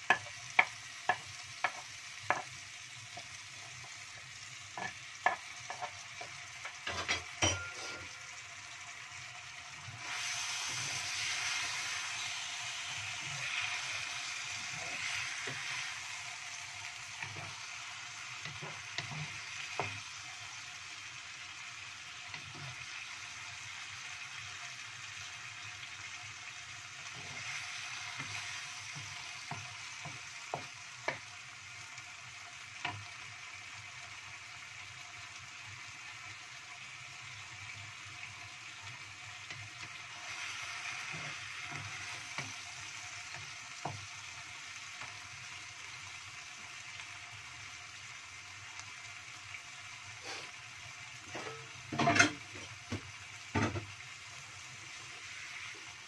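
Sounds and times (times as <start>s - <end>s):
spatula tapping and scraping pan: 0.0s - 4.0s, 4.7s - 8.2s, 13.1s - 15.9s, 17.1s - 20.1s, 27.0s - 31.3s, 40.9s - 44.2s
food sizzling in a wok: 0.0s - 56.0s.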